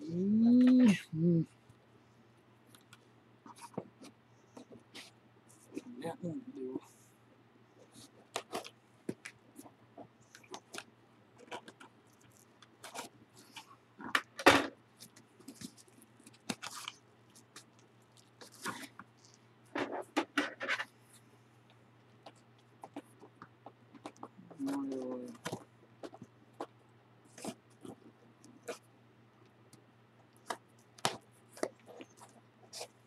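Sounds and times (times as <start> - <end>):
faint low hum: 0.0 - 33.0
package rustling and crinkling: 15.0 - 19.4.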